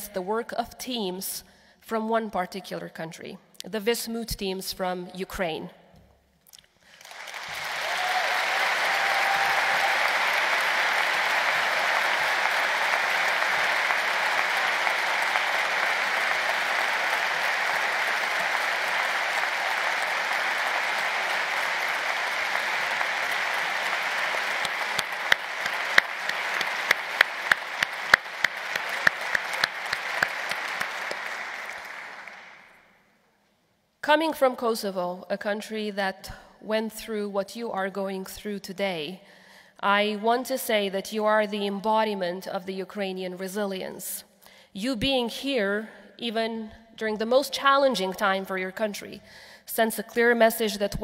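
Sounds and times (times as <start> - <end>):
large audience applauding: 6.9 - 32.8.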